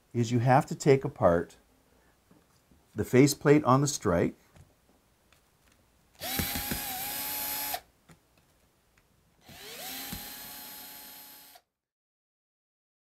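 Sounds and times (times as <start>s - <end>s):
cordless drill whine: 6.2s - 7.8s, 9.4s - 11.6s.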